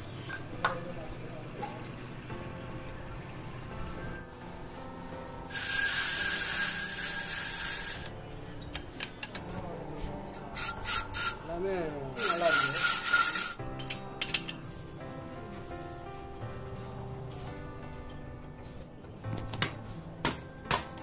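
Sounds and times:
lathe tool scraping metal: 0:05.5 - 0:08.1, 0:10.5 - 0:11.5, 0:12.1 - 0:13.6.

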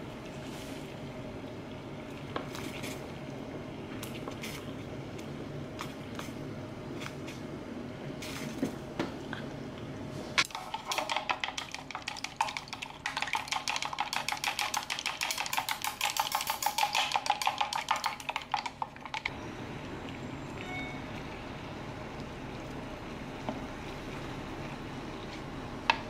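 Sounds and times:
water boiling in a pot: 0:00.0 - 0:26.0
chopsticks beating egg in a cup: 0:10.5 - 0:19.3.

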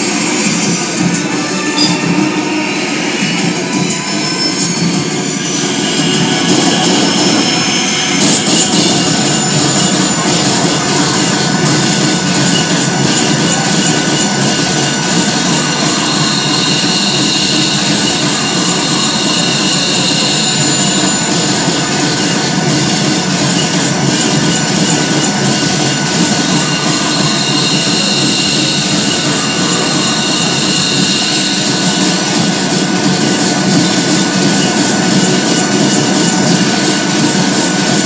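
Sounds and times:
electronic noise music: 0:00.0 - 0:38.0.

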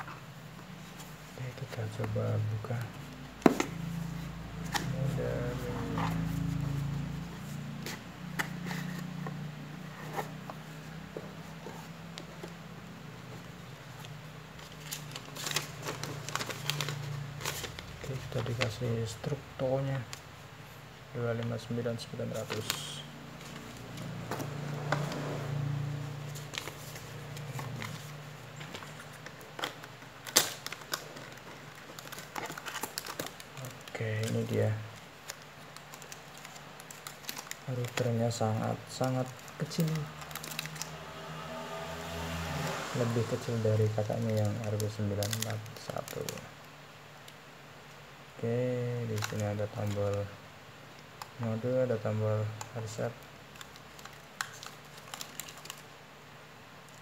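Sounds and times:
cardboard and plastic crinkling: 0:00.0 - 0:09.3, 0:13.3 - 0:20.2, 0:21.4 - 0:25.6, 0:26.2 - 0:40.9, 0:43.4 - 0:46.5, 0:48.4 - 0:50.3, 0:51.1 - 0:56.0.

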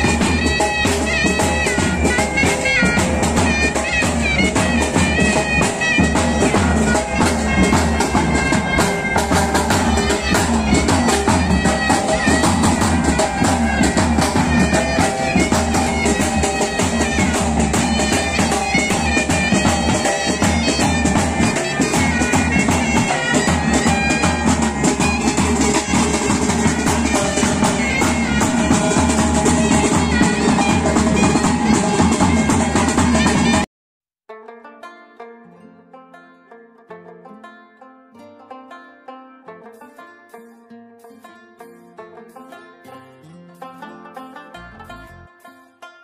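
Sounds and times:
bagpipes melody with drones: 0:00.0 - 0:33.7
drums beating rapidly: 0:00.0 - 0:33.7.

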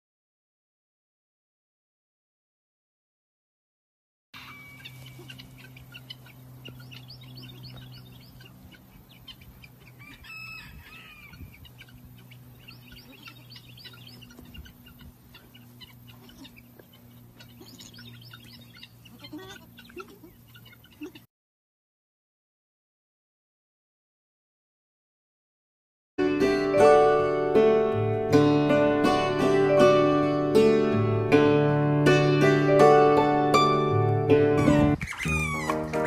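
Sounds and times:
steady low hum: 0:04.4 - 0:21.2
birds chirping and calling: 0:04.4 - 0:21.3, 0:34.6 - 0:36.0.

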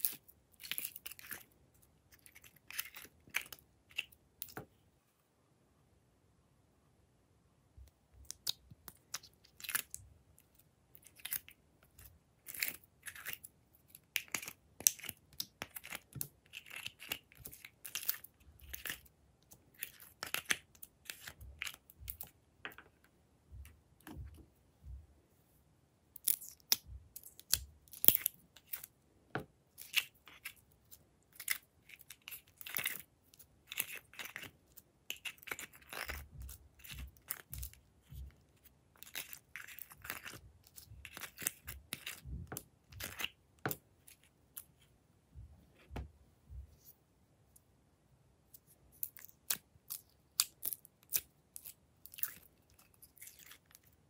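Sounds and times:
slime squishing and squelching: 0:29.7 - 0:44.4.

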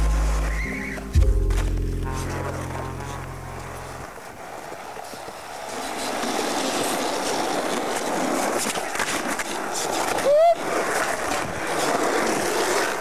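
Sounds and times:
low droning tone: 0:00.0 - 0:04.1
skateboard wheels rolling on concrete: 0:00.0 - 0:13.0
skateboard clacks: 0:00.1 - 0:13.0.

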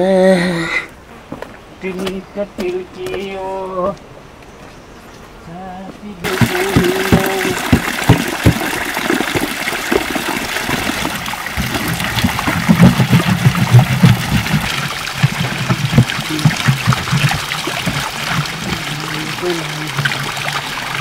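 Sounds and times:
spring water trickling: 0:06.2 - 0:21.0
water splashing into plastic jerrycan: 0:06.2 - 0:21.0.

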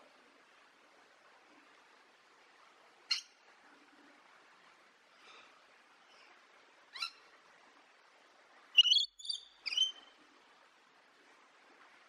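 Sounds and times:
lorikeet high calls: 0:08.8 - 0:10.0.

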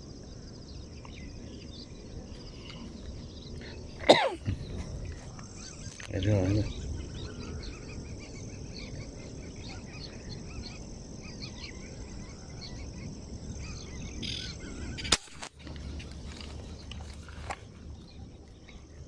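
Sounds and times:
small birds chirping: 0:00.0 - 0:19.0
air rifle shot: 0:15.0 - 0:15.6.

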